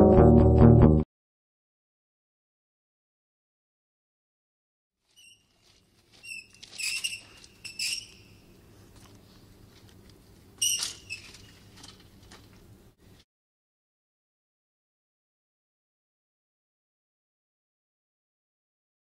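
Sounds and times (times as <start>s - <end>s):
ironing board squeaking: 5.1s - 5.6s, 6.2s - 8.4s, 10.6s - 11.8s.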